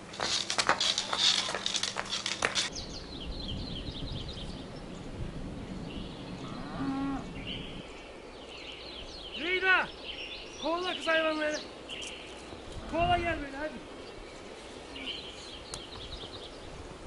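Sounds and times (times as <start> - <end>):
footsteps on stone paving: 0.0 - 2.7
small birds chirping: 0.0 - 17.0.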